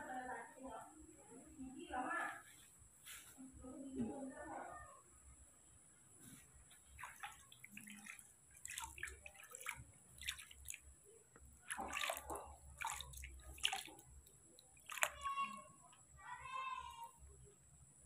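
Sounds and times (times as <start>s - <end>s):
water splashing in a plastic basin: 6.8s - 16.0s.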